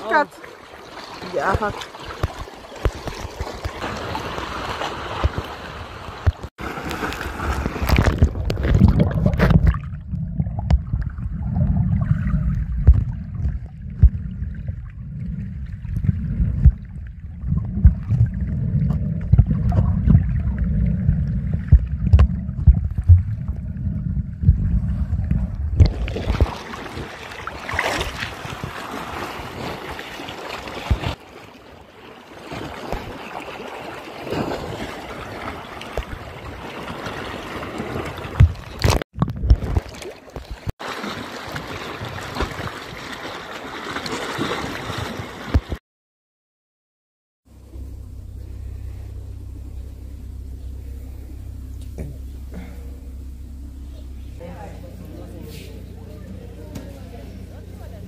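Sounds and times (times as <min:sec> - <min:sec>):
water splashing: 0:00.0 - 0:45.8
muffled underwater rumble: 0:07.6 - 0:28.8, 0:47.5 - 0:58.0.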